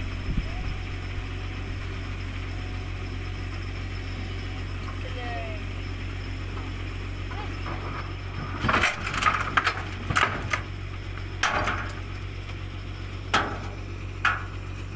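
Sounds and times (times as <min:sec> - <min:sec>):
low engine hum: 0:00.0 - 0:14.9
metal clanks and rattles: 0:06.5 - 0:14.9.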